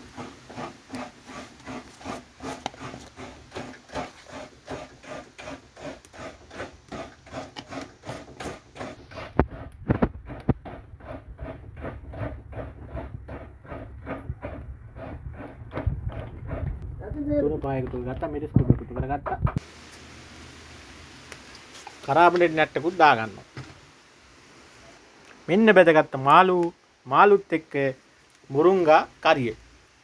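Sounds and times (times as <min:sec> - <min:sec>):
coconut scraping rasps: 0:00.0 - 0:16.8.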